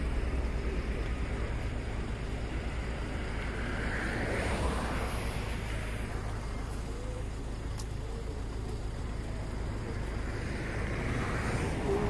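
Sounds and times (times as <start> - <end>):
low road rumble: 0.0 - 12.0
passing vehicle hiss: 2.4 - 7.0, 9.8 - 12.0.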